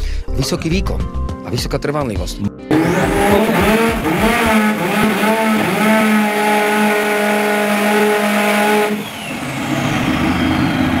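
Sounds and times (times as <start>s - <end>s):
turbocharged engine running: 2.7s - 11.0s
turbo whistle falling in pitch: 6.0s - 9.5s.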